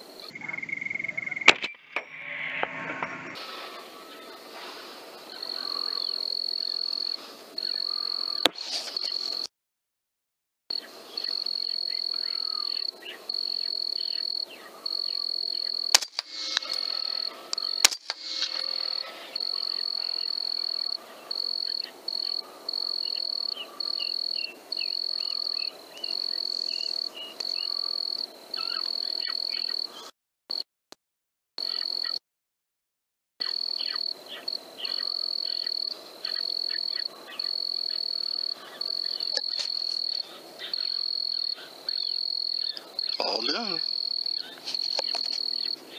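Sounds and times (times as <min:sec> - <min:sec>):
high insect trill: 0:00.0 - 0:09.5, 0:10.7 - 0:29.9, 0:33.4 - 0:45.9
sharp loud clicks: 0:15.9 - 0:16.9, 0:17.5 - 0:18.7.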